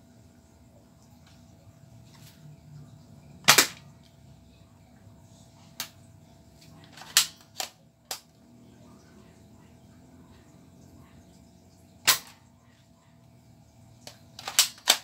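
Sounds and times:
toy dart blaster firing snap: 3.5 - 3.8, 12.0 - 12.4
plastic priming clicks: 14.0 - 15.0.

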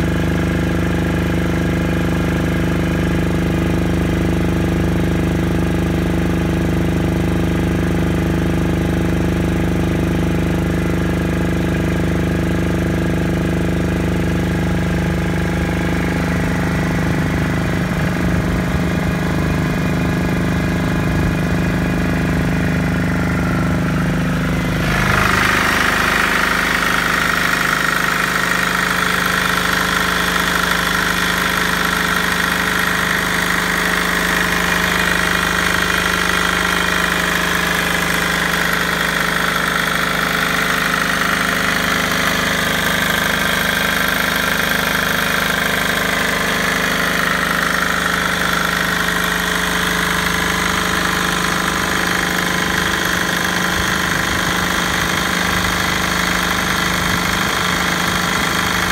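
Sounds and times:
diesel engine running: 0.0 - 58.9.

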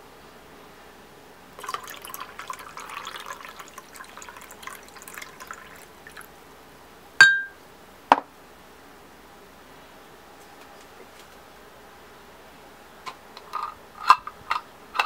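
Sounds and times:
glass jar clinking: 1.6 - 6.2, 7.2 - 7.6
milk pouring and splashing: 1.6 - 6.4.

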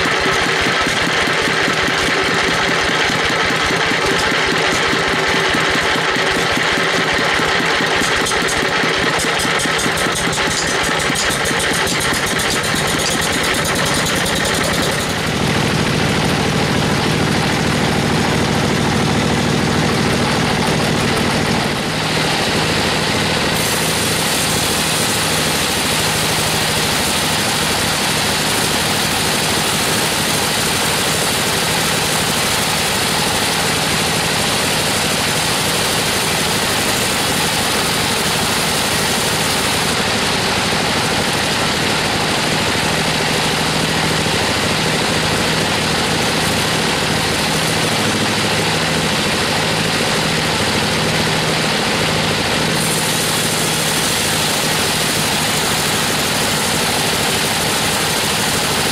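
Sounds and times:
band saw sawing log: 0.0 - 15.8, 21.0 - 33.6, 52.7 - 58.9.

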